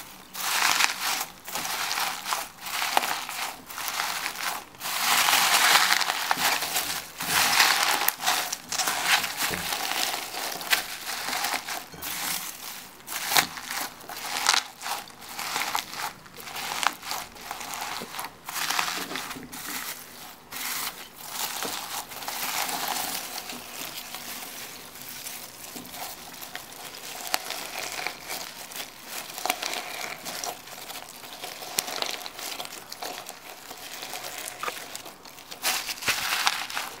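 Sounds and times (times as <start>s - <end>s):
foam bead slime crunching: 0.0s - 37.0s.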